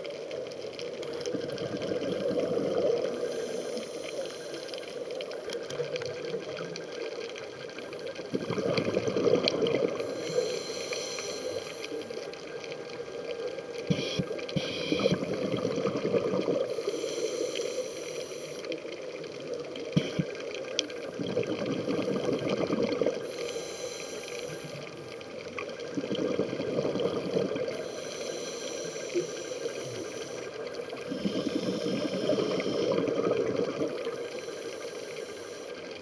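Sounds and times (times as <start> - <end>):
gurgling exhaled bubbles: 0.7 - 4.1, 5.6 - 10.6, 13.2 - 16.9, 19.0 - 23.4, 24.6 - 28.4, 29.0 - 34.3
regulator hissing inhalation: 2.2 - 5.0, 10.0 - 12.1, 13.9 - 15.4, 16.6 - 18.8, 19.9 - 20.4, 23.2 - 24.9, 27.3 - 36.0.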